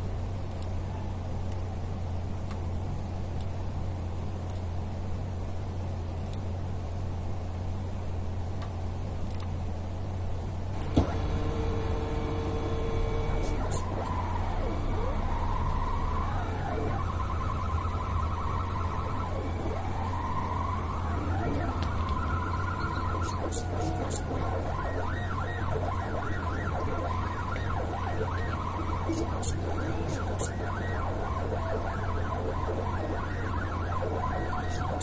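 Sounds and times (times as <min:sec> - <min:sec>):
steady low hum: 0:00.0 - 0:35.0
sharp click: 0:08.6 - 0:09.5
stepper motors whining: 0:10.7 - 0:35.0.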